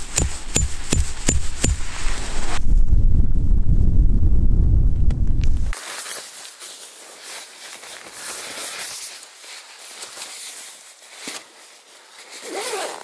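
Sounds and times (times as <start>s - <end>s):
nylon clothing and tent fabric rustling: 0.0s - 2.6s, 5.7s - 13.0s.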